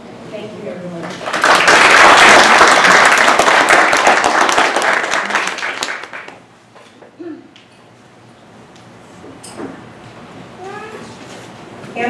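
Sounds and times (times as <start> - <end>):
audience applauding: 1.0 - 6.5.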